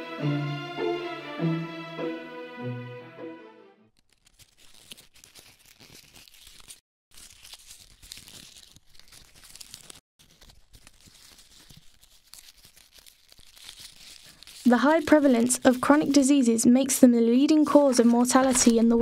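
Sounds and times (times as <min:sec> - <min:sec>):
paper rustling and crinkling: 0:03.9 - 0:16.2, 0:17.5 - 0:19.0.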